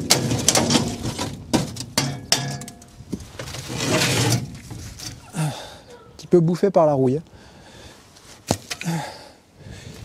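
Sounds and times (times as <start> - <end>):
metal box scraping: 0.0 - 5.2.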